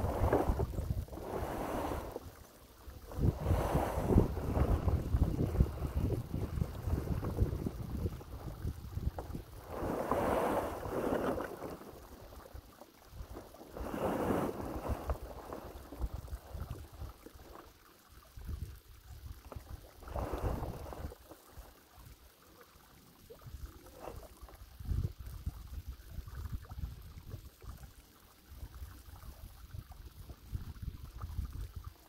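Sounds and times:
wind buffeting microphone: 0.0s - 2.1s, 3.0s - 11.2s
gusts of rushing wind: 0.0s - 2.2s, 3.1s - 11.3s, 20.1s - 21.1s.

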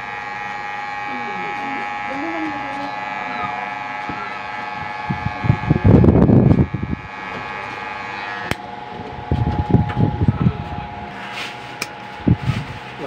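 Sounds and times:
electric hair clipper humming: 0.0s - 13.0s
loud low rumbling: 0.8s - 13.0s.

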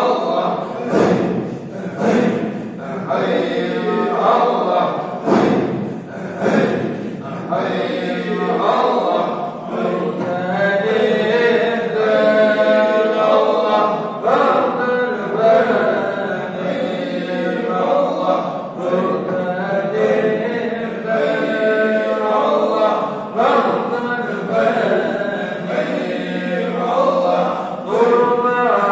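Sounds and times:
men chanting together: 0.0s - 28.9s.

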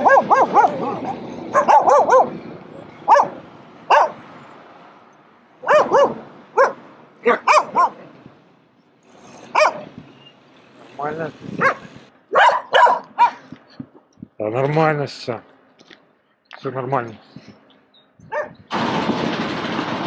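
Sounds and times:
dogs barking and yipping: 0.0s - 4.3s, 5.6s - 8.1s, 9.3s - 10.3s, 11.5s - 13.6s, 18.2s - 18.7s.

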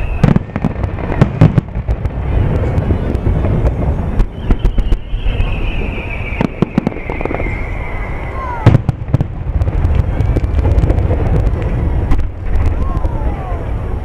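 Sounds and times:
steady low rumble: 0.0s - 5.7s, 6.3s - 14.0s
fireworks bursting with sharp bangs: 0.0s - 14.0s
long descending whistle: 4.3s - 8.6s.

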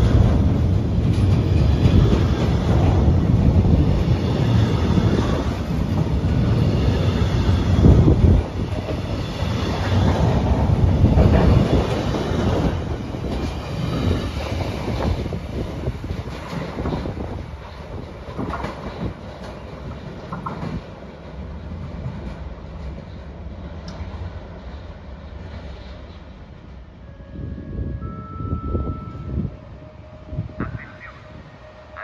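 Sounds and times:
wheels clattering over rails: 0.0s - 20.9s
freight train rumbling past: 0.0s - 32.0s.

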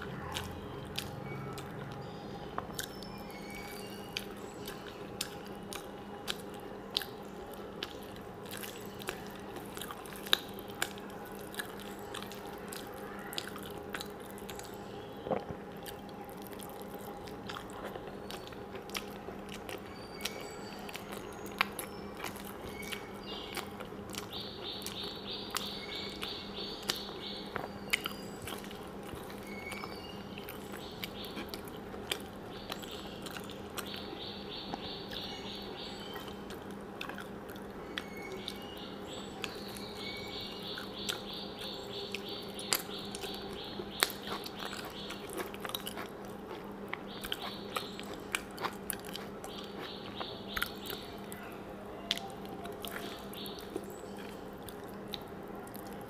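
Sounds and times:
steady low hum: 0.0s - 56.0s
wet chewing and mouth smacks: 0.3s - 2.0s, 4.1s - 35.3s, 36.1s - 38.7s, 40.7s - 51.4s, 52.1s - 56.0s.

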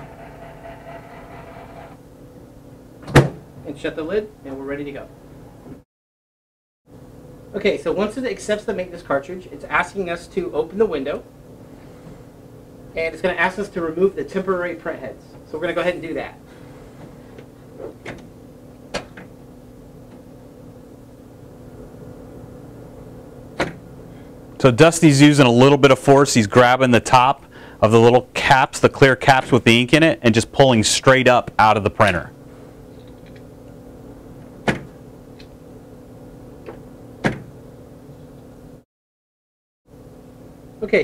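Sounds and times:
steady low hum: 6.9s - 38.8s.

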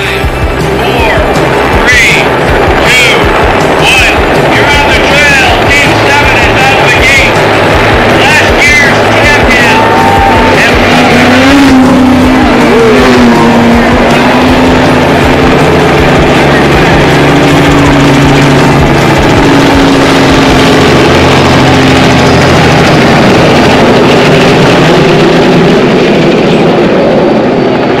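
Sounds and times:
helicopter engine and rotor drone: 0.0s - 28.0s.

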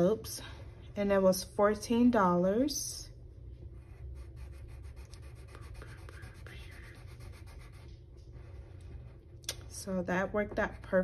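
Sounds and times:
low steady hum: 0.0s - 11.0s
pencil scratching on paper: 3.7s - 9.1s.

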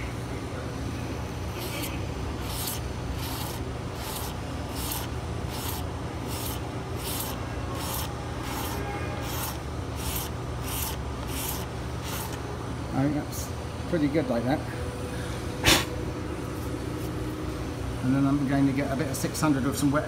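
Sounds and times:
steady low hum: 0.0s - 20.0s
razor blade scraping paint: 1.6s - 12.4s.

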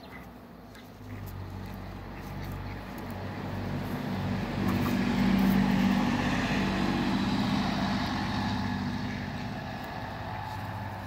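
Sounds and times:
vehicle engine hum: 0.0s - 11.0s.

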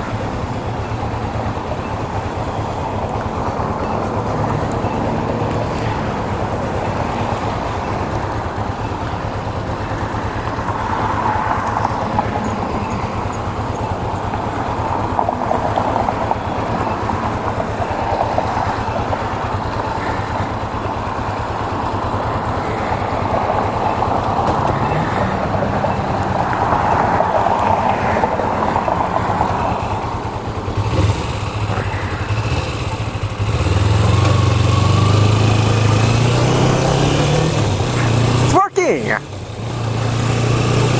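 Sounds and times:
motorcycle engine idling: 0.0s - 36.8s
motorcycle engine revving: 0.0s - 40.9s.

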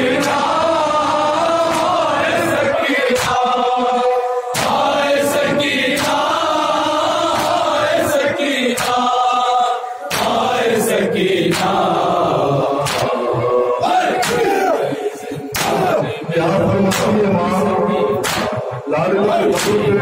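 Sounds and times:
men chanting in unison: 0.0s - 20.0s
hands slapping chests: 1.6s - 2.0s, 3.2s - 3.4s, 4.6s - 5.0s, 7.3s - 7.7s, 8.7s - 9.1s, 10.1s - 10.5s, 11.4s - 11.9s, 12.8s - 13.3s, 14.2s - 14.5s, 15.5s - 15.9s, 18.2s - 18.7s, 19.6s - 19.9s.

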